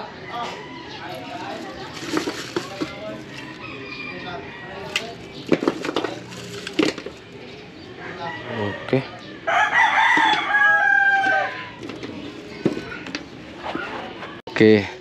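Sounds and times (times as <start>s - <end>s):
rooster crowing: 0.2s - 1.5s, 3.2s - 5.1s, 7.9s - 11.8s
plastic packaging rustling: 1.1s - 3.6s, 4.9s - 7.3s.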